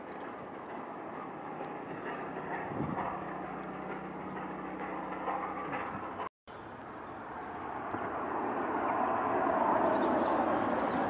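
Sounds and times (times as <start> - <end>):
steam locomotive and train approaching: 0.0 - 11.0.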